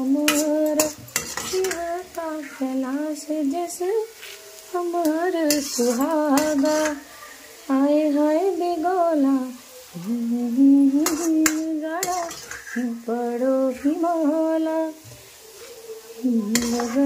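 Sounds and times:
metal spatula clinking on pan: 0:00.2 - 0:02.1, 0:05.4 - 0:07.0, 0:11.0 - 0:12.8, 0:16.5 - 0:17.0
woman humming: 0:10.0 - 0:11.3, 0:16.2 - 0:17.0.

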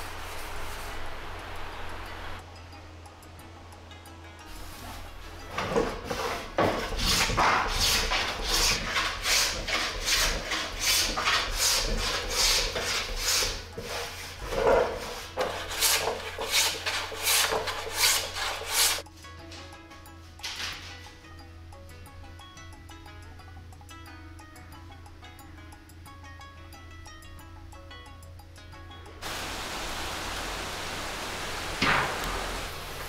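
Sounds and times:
faint background music: 0:00.0 - 0:29.2
hand plane rasping on wood: 0:05.9 - 0:19.0.

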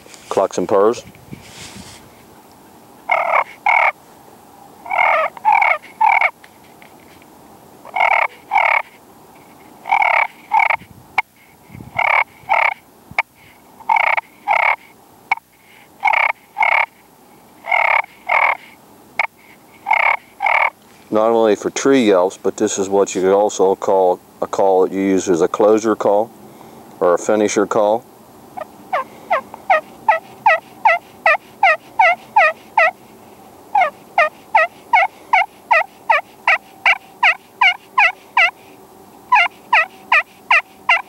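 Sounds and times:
turkey call clucks and purrs: 0:03.0 - 0:06.4, 0:07.8 - 0:17.0, 0:17.6 - 0:20.8, 0:28.6 - 0:41.0.

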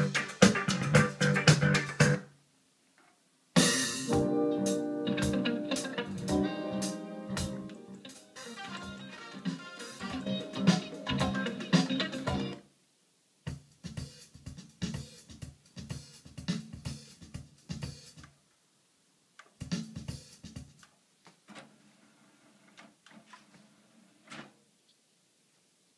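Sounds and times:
drum-led rock music: 0:00.0 - 0:02.2, 0:03.6 - 0:12.6, 0:13.5 - 0:18.2, 0:19.6 - 0:20.8.

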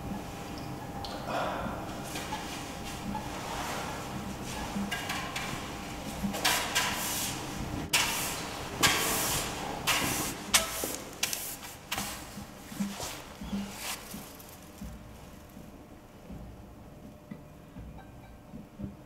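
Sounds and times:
mop swishing across hard floor: 0:02.0 - 0:15.4.

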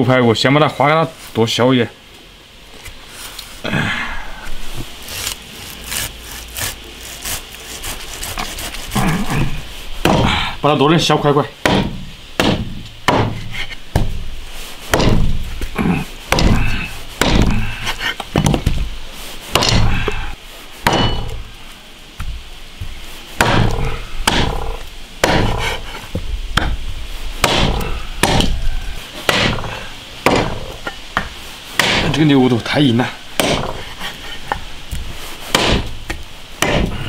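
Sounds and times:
cleaver chopping through bone: 0:10.0 - 0:10.4, 0:11.6 - 0:14.1, 0:14.9 - 0:15.3, 0:16.3 - 0:17.8, 0:19.5 - 0:20.2, 0:20.8 - 0:21.4, 0:23.4 - 0:25.8, 0:27.4 - 0:28.6, 0:29.3 - 0:30.7, 0:31.8 - 0:32.2, 0:33.4 - 0:33.9, 0:35.0 - 0:37.0.

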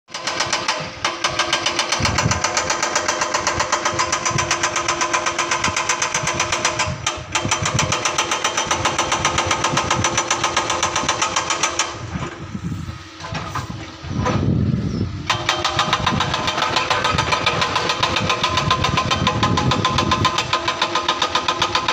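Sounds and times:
excavator mechanical clatter: 0:00.1 - 0:21.9
steady machine hum: 0:00.8 - 0:21.9.

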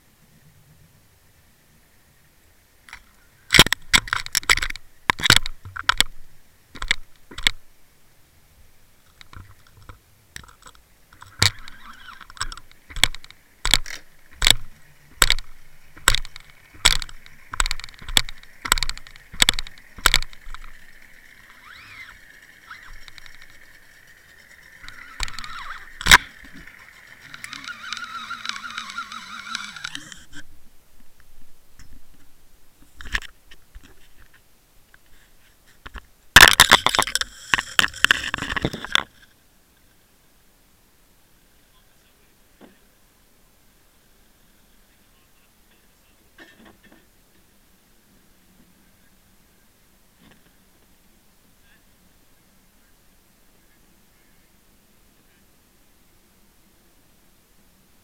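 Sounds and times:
faint water rushing: 0:00.0 - 0:58.0
underwater camera handling knocks: 0:02.9 - 0:06.2, 0:06.8 - 0:07.6, 0:09.1 - 0:21.7
wavering hum: 0:10.4 - 0:30.8.

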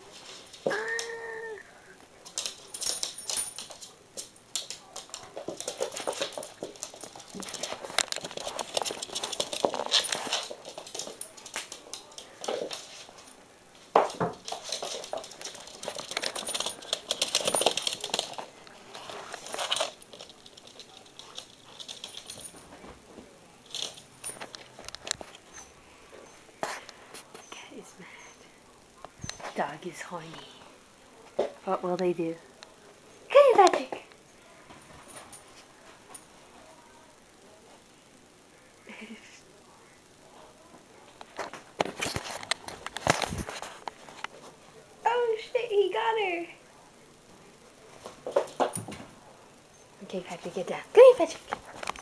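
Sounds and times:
claws clicking on wooden floor: 0:02.2 - 0:13.3, 0:13.9 - 0:22.6
collars jingling: 0:02.2 - 0:13.4, 0:14.3 - 0:23.0.

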